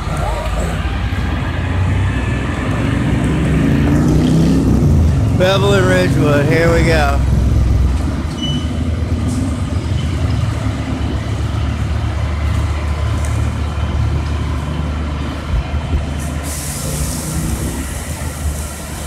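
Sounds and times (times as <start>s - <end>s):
fire engine rumbling: 0.0s - 19.0s
hose spraying water: 16.2s - 19.0s.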